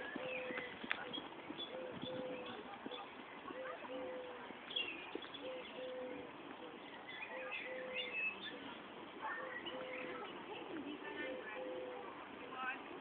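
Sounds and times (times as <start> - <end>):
small birds chirping: 0.0 - 13.0
pigeon cooing: 1.6 - 4.5, 5.1 - 8.7, 9.4 - 10.3, 11.1 - 12.1.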